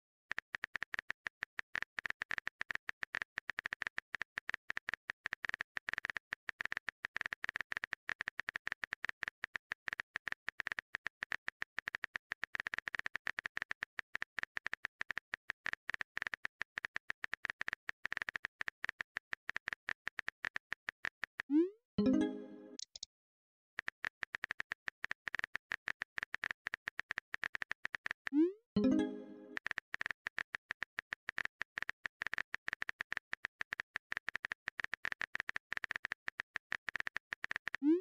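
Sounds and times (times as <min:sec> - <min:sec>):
keyboard typing clicks: 0:22.0 - 0:23.1, 0:26.2 - 0:29.7.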